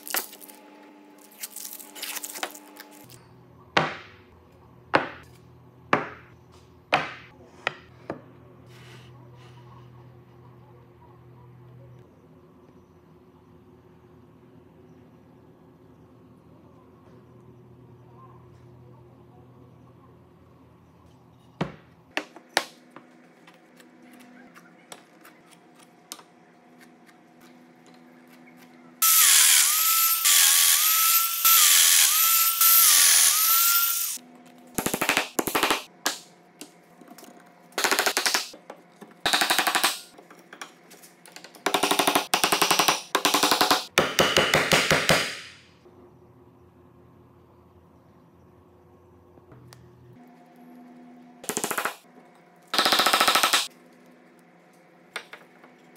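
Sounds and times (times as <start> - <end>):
power tool hammering: 29.0 - 34.2, 39.2 - 40.2, 41.6 - 45.6, 52.7 - 53.7
power tool whining: 29.0 - 34.2.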